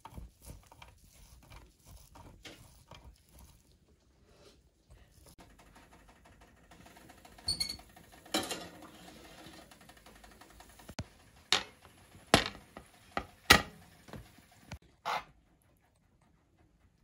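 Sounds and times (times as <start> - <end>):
kitchenware knocking and clinking: 7.5 - 8.8, 11.5 - 13.8.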